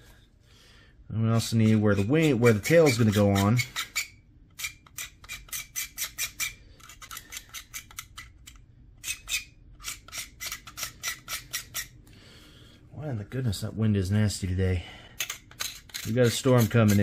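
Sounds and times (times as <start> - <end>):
knife blade scraping plastic: 1.6 - 11.9, 15.2 - 17.0.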